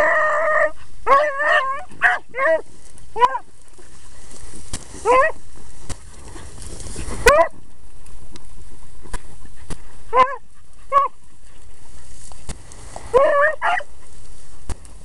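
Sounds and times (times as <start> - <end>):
beagles baying: 0.0 - 5.5, 9.4 - 14.2.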